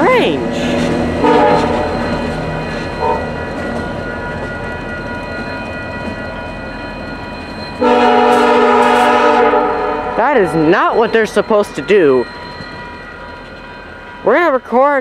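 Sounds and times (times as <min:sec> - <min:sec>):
train wheels rumbling: 0:00.0 - 0:15.0
train air horn blasts: 0:01.2 - 0:02.0, 0:03.0 - 0:03.3, 0:07.8 - 0:10.2.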